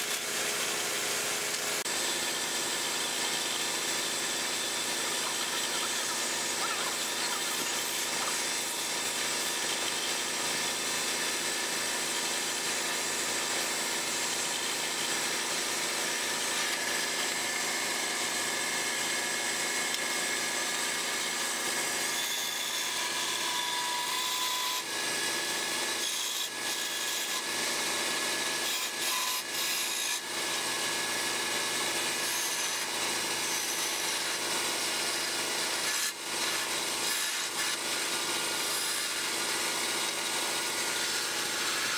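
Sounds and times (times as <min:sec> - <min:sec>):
chisel scraping spinning wood: 0:00.0 - 0:13.3
wood lathe hum: 0:00.0 - 0:41.9.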